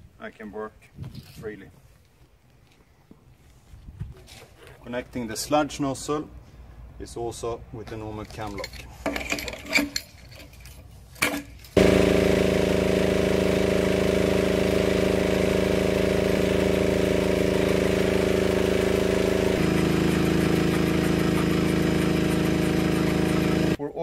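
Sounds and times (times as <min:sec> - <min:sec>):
metal click of hose couplings: 0:07.9 - 0:11.8
diesel power pack running: 0:11.8 - 0:23.8.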